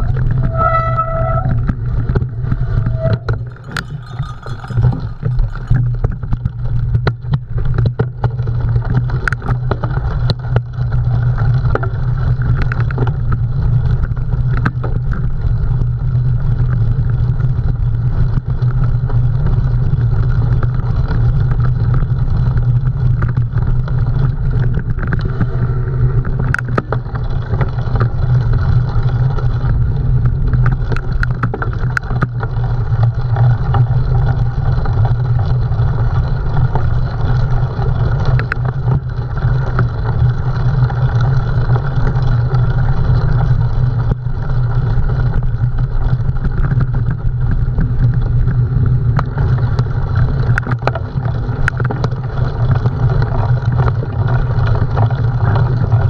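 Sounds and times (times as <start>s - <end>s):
bike clicks and knocks: 0.0s - 15.5s, 20.4s - 43.3s
wind and tyre rumble: 0.0s - 56.0s.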